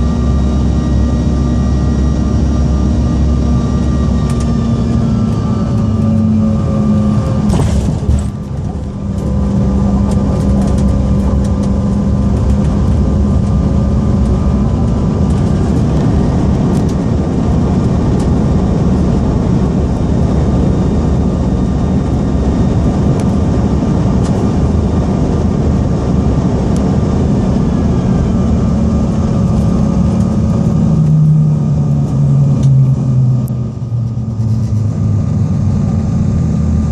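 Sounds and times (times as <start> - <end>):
jet engines humming: 0.0 - 36.9
wheels rumbling on runway: 0.0 - 36.9.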